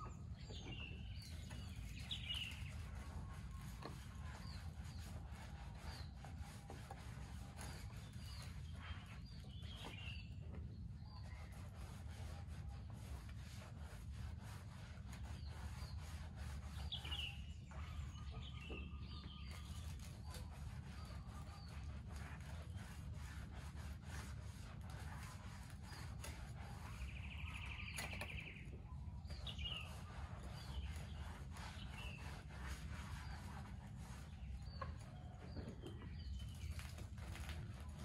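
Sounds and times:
birds chirping: 0.0 - 11.5, 15.2 - 21.8, 25.9 - 38.0
scrubbing bicycle by hand: 1.4 - 10.3, 11.3 - 18.2, 19.0 - 28.5, 29.3 - 34.7.

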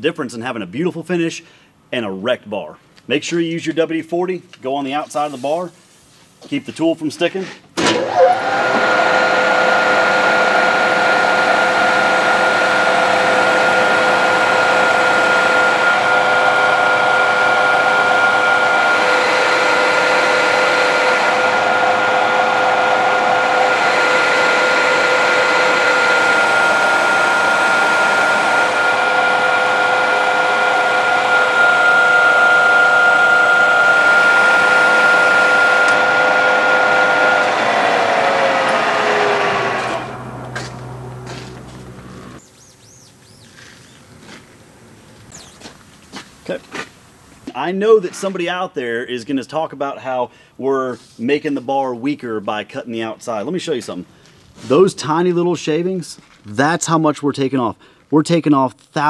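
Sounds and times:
metal lathe whining: 7.8 - 42.4.

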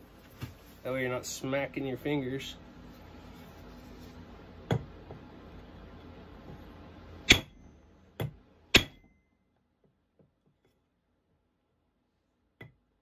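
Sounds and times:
hammer striking metal: 7.2 - 9.2.

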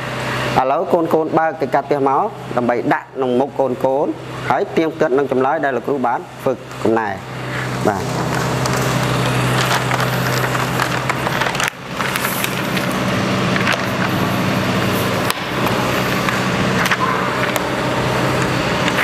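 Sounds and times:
steady low hum: 0.0 - 19.0
paper rustling and crackling: 7.9 - 17.8.

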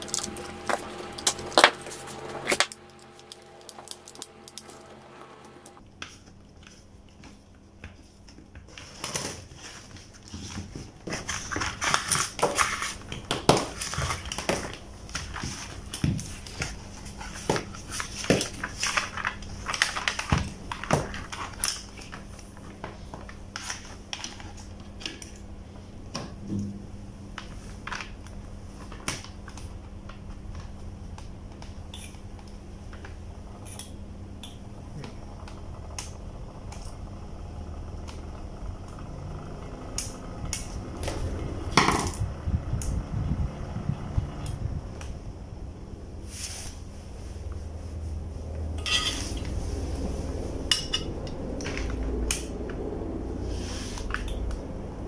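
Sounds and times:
low hum: 0.0 - 7.0, 12.6 - 28.8, 29.4 - 55.0.

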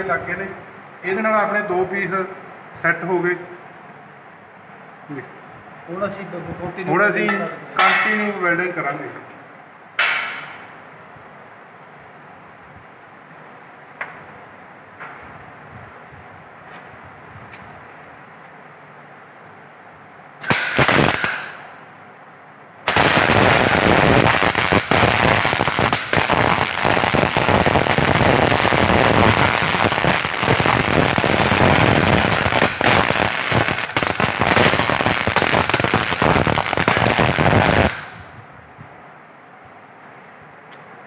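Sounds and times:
welding arc crackling: 20.4 - 21.8, 22.8 - 38.4.

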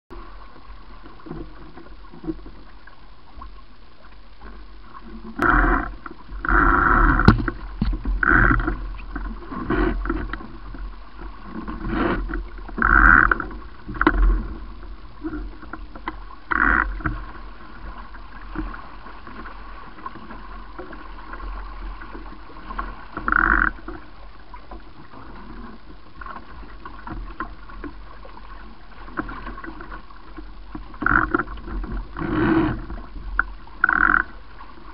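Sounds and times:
water rushing past hulls: 0.1 - 34.9
wind on microphone: 5.1 - 15.6.

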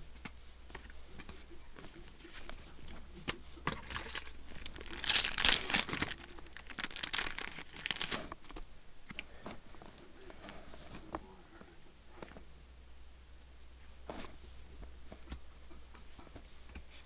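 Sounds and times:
foil wrapper crinkling and tearing: 3.7 - 8.5.

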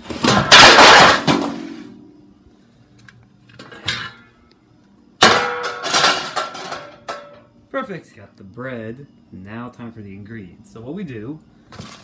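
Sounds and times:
metal baking sheet clattering: 0.2 - 1.8, 5.2 - 7.4.

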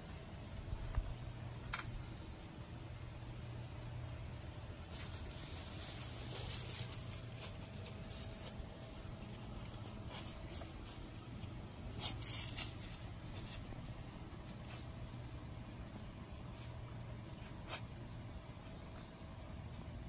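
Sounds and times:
puppy rustling through grass: 4.8 - 20.0.

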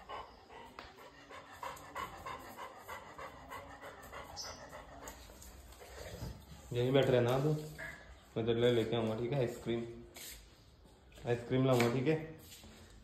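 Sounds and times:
dog panting: 0.0 - 8.0.

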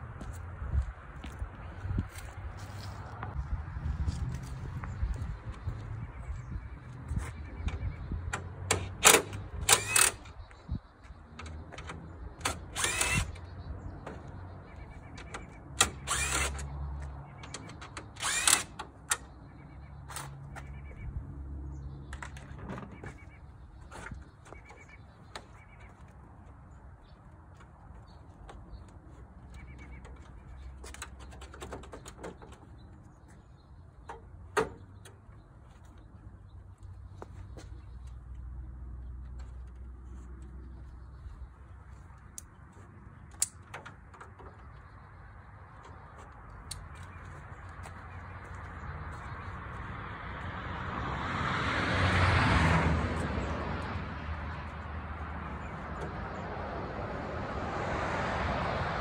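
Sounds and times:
grille clicking and rattling: 7.6 - 19.4, 22.0 - 36.4, 42.2 - 48.6
drill bit clicks: 12.4 - 13.4, 15.8 - 16.7, 17.8 - 18.8
cordless drill spinning: 12.7 - 13.4, 16.0 - 16.6, 18.2 - 18.7.

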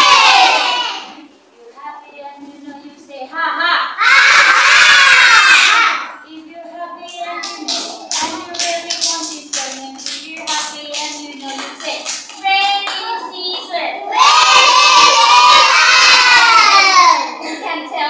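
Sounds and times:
children shouting together: 0.0 - 1.2, 4.0 - 6.2, 14.1 - 17.5
children clapping in rhythm: 7.1 - 13.8
children singing chant: 14.1 - 17.2.

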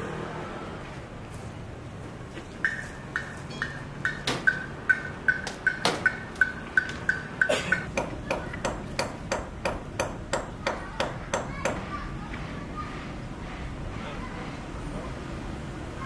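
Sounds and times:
hammer striking metal: 2.6 - 11.9.

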